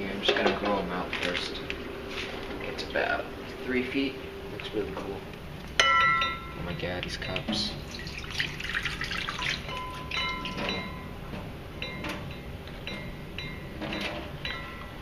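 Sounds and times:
water splashing into metal sink: 7.8 - 10.8.

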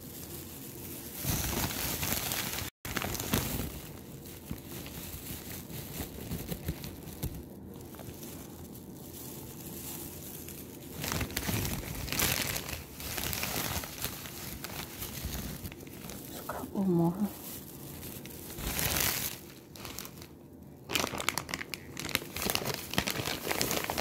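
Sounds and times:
plastic bag crinkling: 0.0 - 24.0.

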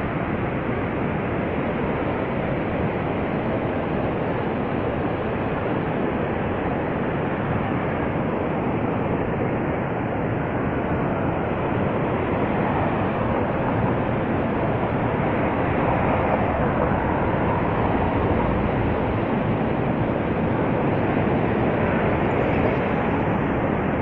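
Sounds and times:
river churning: 7.3 - 24.0.

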